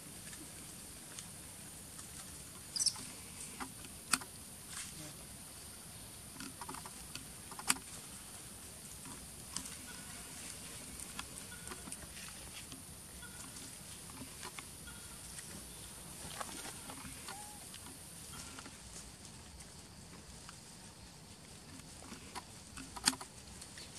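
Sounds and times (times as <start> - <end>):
faint high chirps: 2.7 - 3.0, 13.1 - 13.7, 17.2 - 18.4.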